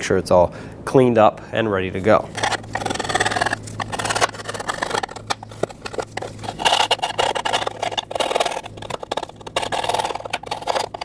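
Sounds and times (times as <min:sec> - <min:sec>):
metal tool scraping corrosion: 0:02.3 - 0:11.0.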